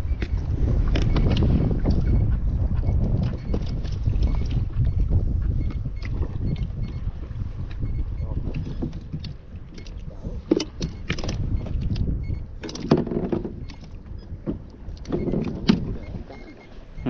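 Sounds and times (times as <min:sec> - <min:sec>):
wind rumble on microphone: 0:00.0 - 0:17.0
gear knocking on plastic kayak: 0:07.6 - 0:16.1.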